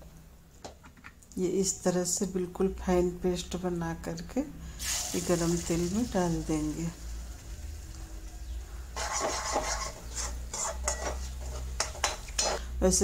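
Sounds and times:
paste sizzling in hot oil: 0:04.8 - 0:12.7
metal spoon scraping steel jar: 0:09.0 - 0:12.7.

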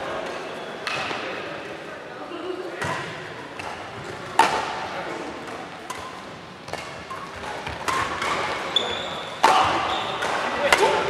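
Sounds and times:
rackets hitting shuttlecock: 0:02.8 - 0:11.0.

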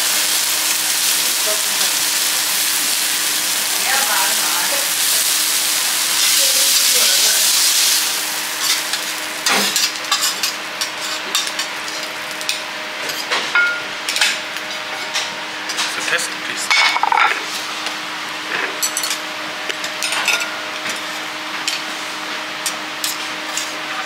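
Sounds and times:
beef sizzling on a griddle: 0:00.0 - 0:24.0.

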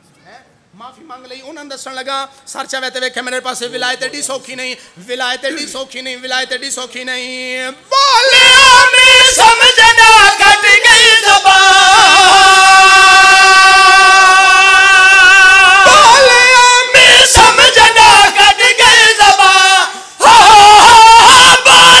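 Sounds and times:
men chanting loudly: 0:08.1 - 0:22.0.

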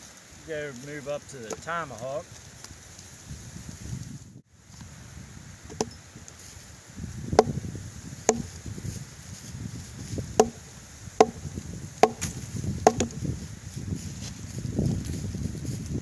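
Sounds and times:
tomahawk chopping into wood: 0:05.7 - 0:06.0, 0:07.3 - 0:07.6, 0:08.3 - 0:08.6, 0:10.4 - 0:13.2.

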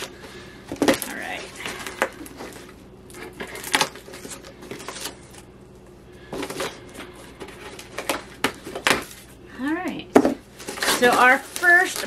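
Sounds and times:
cardboard rustling and scraping: 0:00.7 - 0:05.5, 0:06.2 - 0:09.3, 0:10.5 - 0:12.0.

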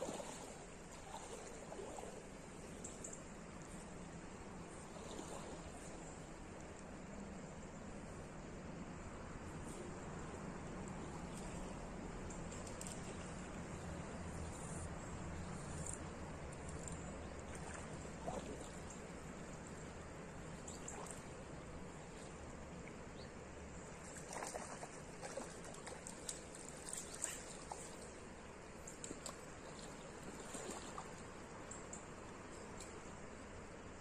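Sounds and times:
river trickling: 0:00.0 - 0:34.0
splashes in shallow water: 0:23.8 - 0:31.5.

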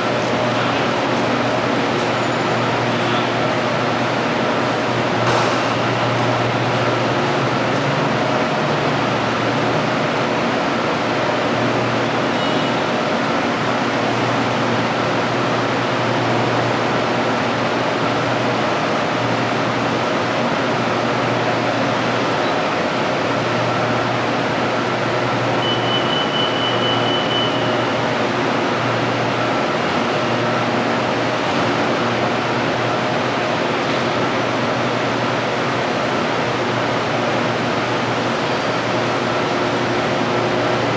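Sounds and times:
metro train running: 0:00.0 - 0:40.9
short high beep: 0:25.6 - 0:27.9.

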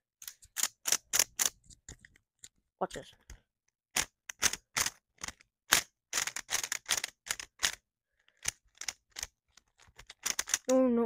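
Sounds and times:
speed cube plastic clicks: 0:00.2 - 0:02.2, 0:04.0 - 0:10.8.

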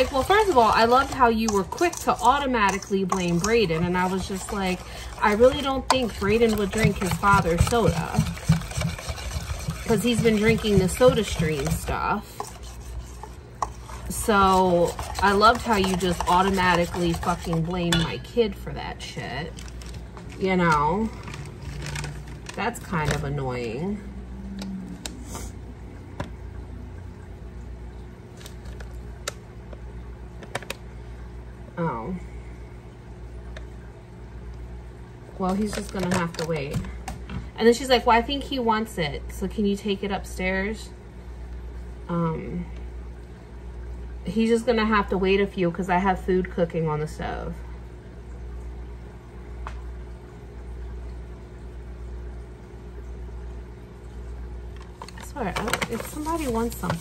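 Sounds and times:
food bubbling on stove: 0:00.0 - 0:18.2
low hum: 0:00.0 - 0:37.7.

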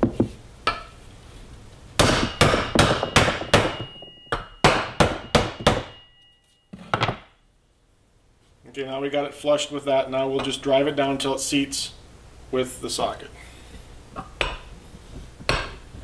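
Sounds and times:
faint metallic ringing: 0:02.3 - 0:07.4.

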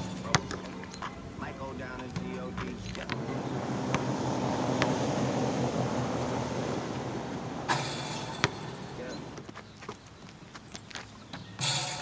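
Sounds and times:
basketball bouncing on asphalt: 0:00.0 - 0:01.4, 0:02.0 - 0:05.8, 0:07.6 - 0:12.0
low steady rumble: 0:01.1 - 0:09.4.

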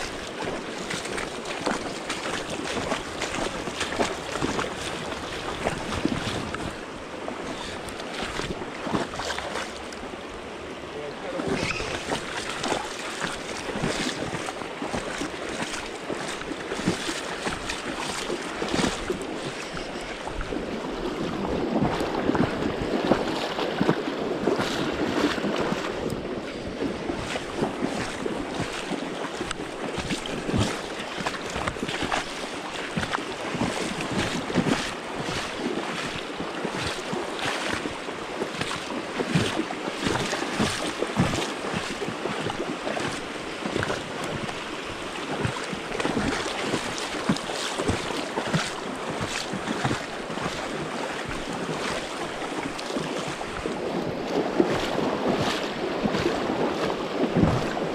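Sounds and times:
wind on microphone: 0:00.0 - 0:09.2, 0:16.0 - 0:38.4
splashes of wading legs: 0:00.0 - 0:10.6, 0:11.2 - 0:57.9
river current rushing: 0:00.0 - 0:57.9.

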